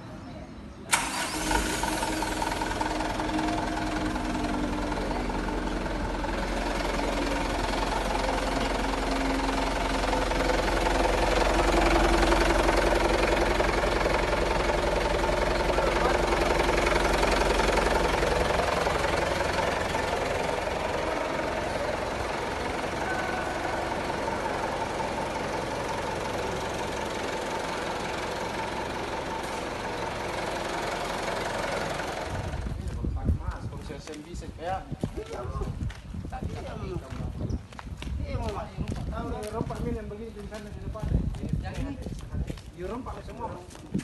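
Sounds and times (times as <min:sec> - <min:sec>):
diesel truck engine idling: 0:00.9 - 0:33.0.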